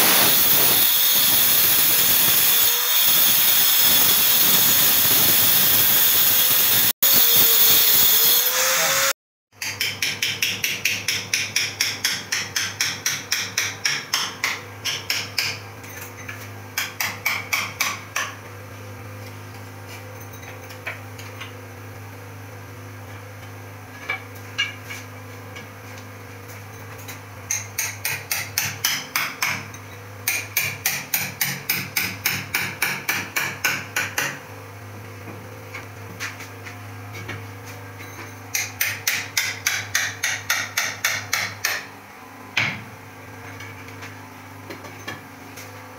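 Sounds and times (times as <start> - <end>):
hammer striking steel chisel: 9.6 - 15.6, 16.8 - 18.4, 27.5 - 34.4, 38.0 - 41.9.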